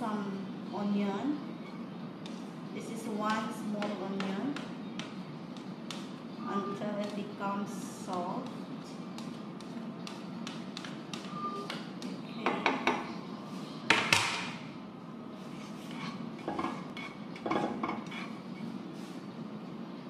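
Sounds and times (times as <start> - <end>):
spatula scraping frying pan: 15.4 - 18.7.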